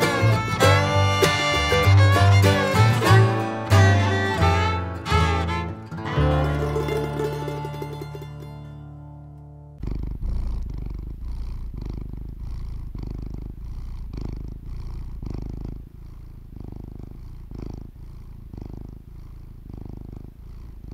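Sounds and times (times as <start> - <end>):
cat purring: 0.0 - 3.1, 9.8 - 20.9.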